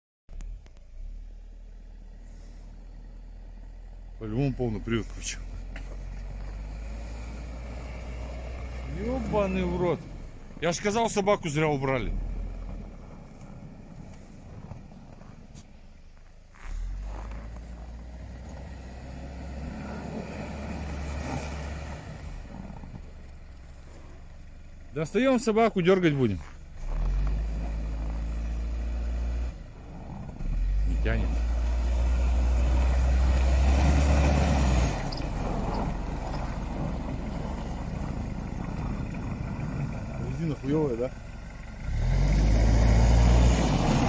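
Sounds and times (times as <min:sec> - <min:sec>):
suv engine revving: 0:00.3 - 0:15.7, 0:16.6 - 0:44.0
wheels spinning in snow: 0:12.2 - 0:24.6, 0:26.1 - 0:44.0
engine revving hard: 0:30.4 - 0:35.8, 0:41.8 - 0:44.0.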